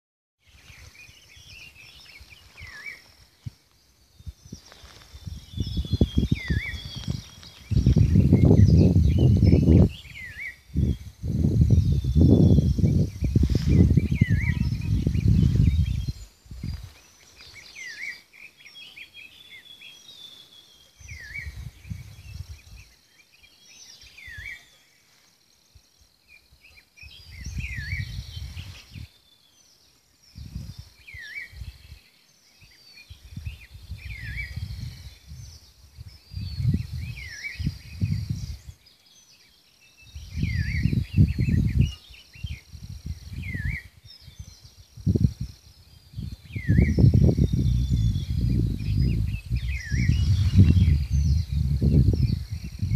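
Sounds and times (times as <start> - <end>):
wind buffeting microphone: 0.6 - 17.8, 21.0 - 23.0, 27.0 - 29.1, 30.2 - 32.0, 33.1 - 38.8, 40.1 - 52.9
bird twittering: 4.2 - 11.0.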